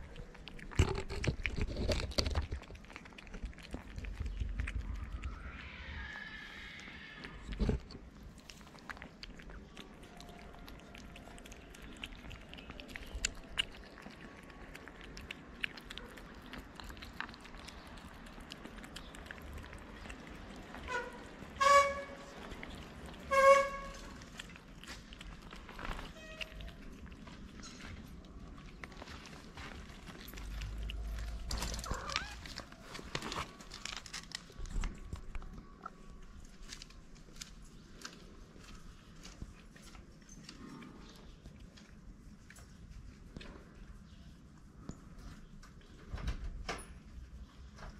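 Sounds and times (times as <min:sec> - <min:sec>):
cats chewing wet food: 0:00.0 - 0:46.2
cat chirp: 0:31.6 - 0:32.6.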